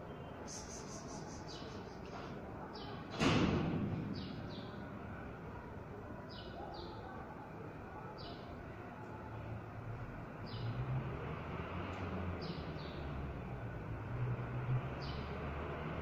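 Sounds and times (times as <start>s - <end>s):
steady background noise: 0.0s - 16.0s
small birds chirping: 0.1s - 3.0s.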